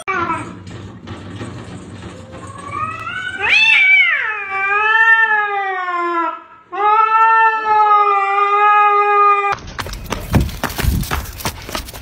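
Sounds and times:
cat yowling: 2.5s - 9.6s.

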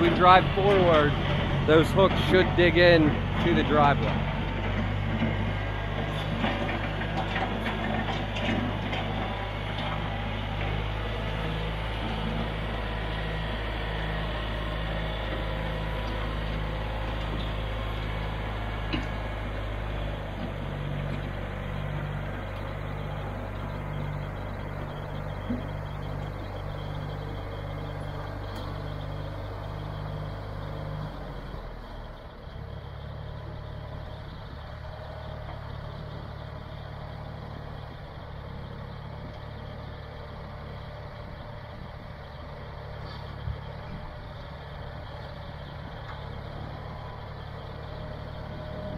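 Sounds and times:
tractor engine running under load: 0.0s - 48.9s.

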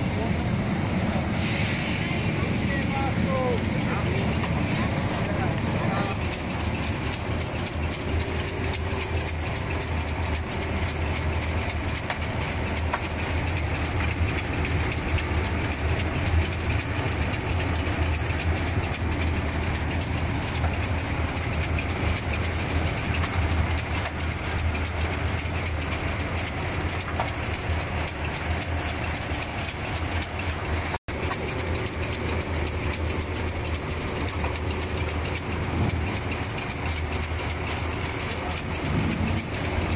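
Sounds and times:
conveyor belt rattling: 0.0s - 39.9s
low motor hum: 0.0s - 39.9s.

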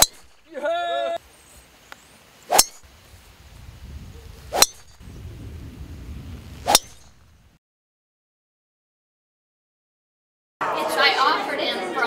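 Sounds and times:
golf club metallic ping: 0.0s - 0.4s, 2.5s - 2.8s, 4.5s - 5.0s, 6.6s - 7.3s.

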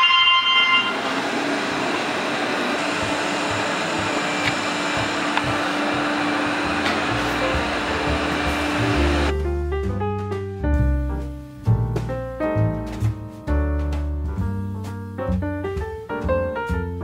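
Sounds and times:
robot vacuum motor humming: 1.1s - 9.3s.

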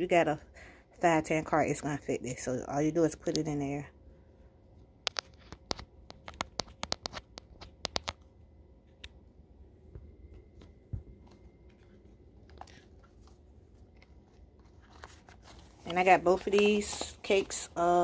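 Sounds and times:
faint handling noise: 4.7s - 18.0s.

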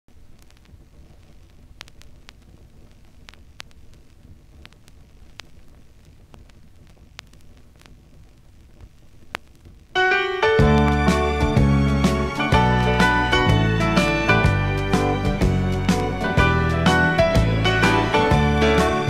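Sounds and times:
vinyl clicks and pops: 0.1s - 11.5s
vinyl surface noise: 0.1s - 19.0s
song intro: 10.0s - 19.0s.

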